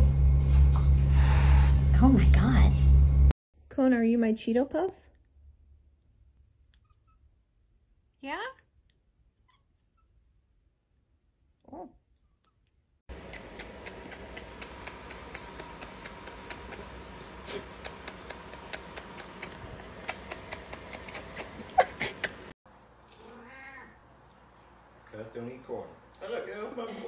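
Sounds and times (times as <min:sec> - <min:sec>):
cat vocalizing: 0:13.1 - 0:22.5.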